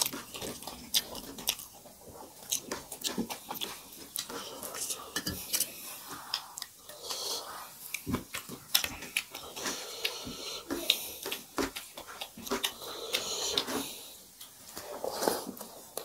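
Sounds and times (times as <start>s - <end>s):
wet chewing: 0.0s - 16.0s
lip smacks: 7.8s - 13.8s.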